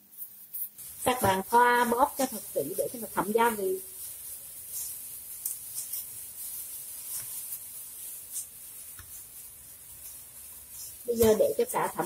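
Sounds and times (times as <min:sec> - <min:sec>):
plastic gloves rustling: 0:00.0 - 0:12.0.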